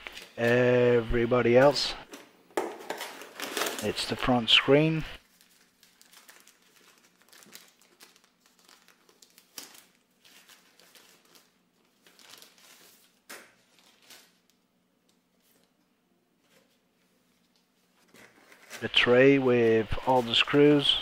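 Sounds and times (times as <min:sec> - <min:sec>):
plastic wrapping crinkling: 0:00.0 - 0:00.6, 0:02.6 - 0:04.0, 0:05.2 - 0:14.6.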